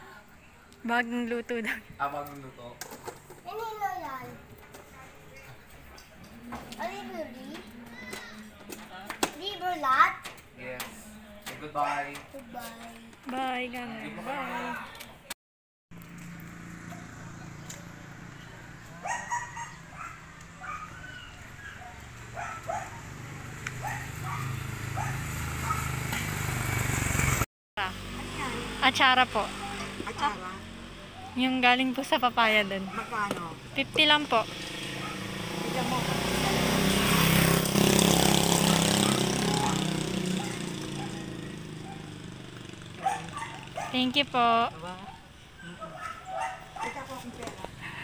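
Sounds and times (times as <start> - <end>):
vehicle engine passing by: 16.0 - 48.0
dog barking: 19.0 - 23.2, 23.8 - 26.0, 32.8 - 33.3, 34.9 - 35.4, 40.4 - 42.2, 43.0 - 44.1, 45.0 - 48.0.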